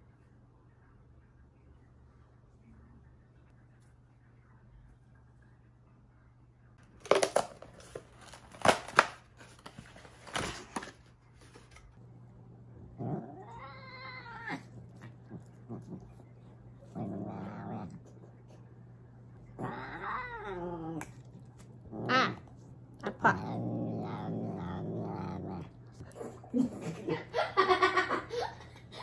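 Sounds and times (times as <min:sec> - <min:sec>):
cat yowling: 0:13.2 - 0:15.1, 0:19.6 - 0:21.1.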